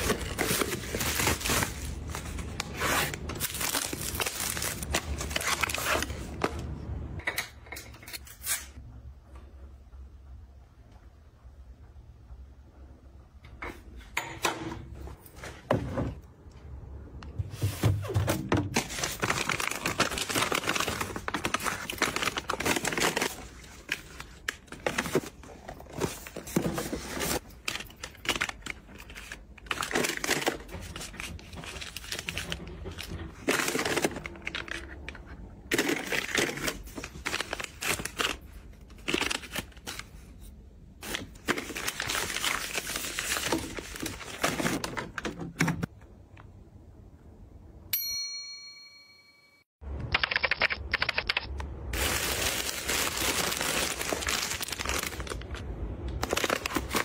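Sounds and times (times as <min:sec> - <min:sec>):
packaging crinkling and rustling: 0:00.0 - 0:06.7, 0:17.7 - 0:45.6, 0:51.9 - 0:57.0.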